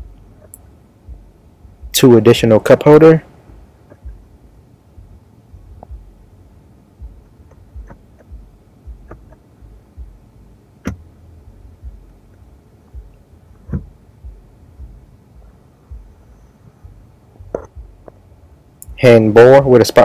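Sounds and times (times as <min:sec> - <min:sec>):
soft low thumps: 0:00.0 - 0:02.3, 0:03.3 - 0:19.2
plastic armrest clicking: 0:09.0 - 0:09.4.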